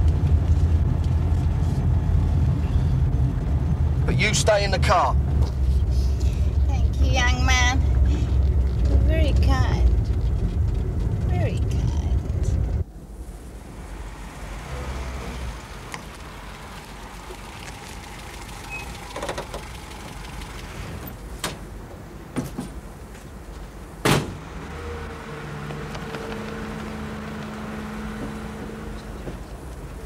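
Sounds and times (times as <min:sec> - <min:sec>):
car engine idling: 0:00.0 - 0:21.8.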